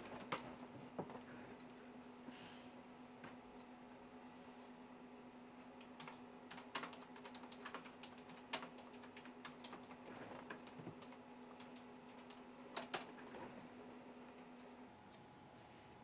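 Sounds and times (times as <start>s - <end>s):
steady low hum: 0.0s - 16.0s
keyboard typing clicks: 5.6s - 13.2s.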